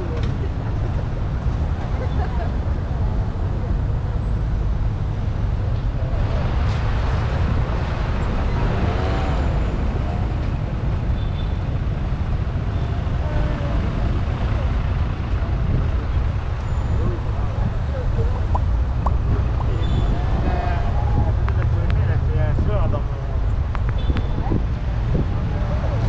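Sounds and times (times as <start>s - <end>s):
low rumble of traffic: 0.0s - 26.0s
faint voices: 12.4s - 26.0s.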